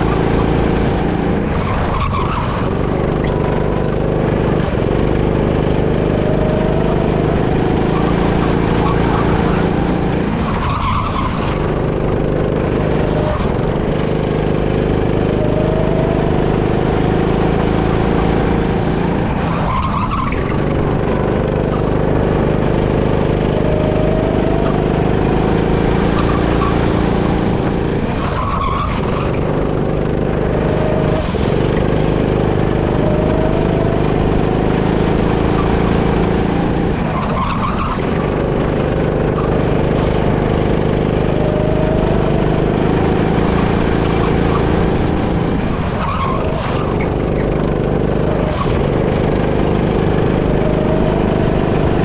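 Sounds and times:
go-kart engine revving: 0:00.0 - 0:52.0
tyre squeal: 0:06.0 - 0:13.5, 0:21.4 - 0:29.8.

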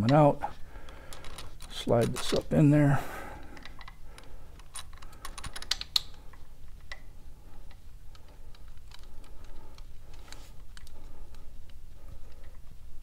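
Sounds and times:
metal tools clicking and tapping: 0:03.6 - 0:07.1.

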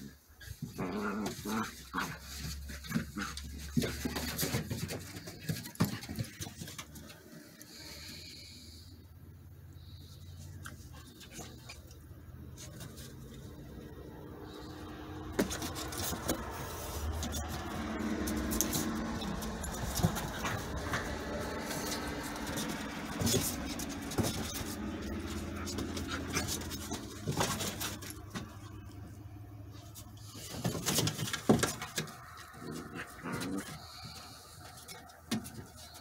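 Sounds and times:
puppy growls and grunts: 0:00.0 - 0:04.6, 0:13.1 - 0:28.1, 0:32.2 - 0:34.9
paws scrabbling on wooden boards: 0:00.5 - 0:07.4, 0:14.5 - 0:36.0.

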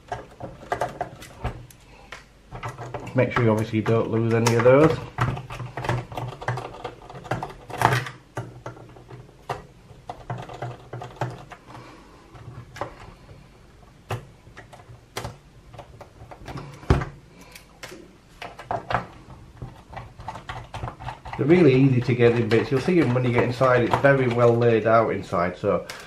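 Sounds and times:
plastic case being handled: 0:17.9 - 0:25.0.

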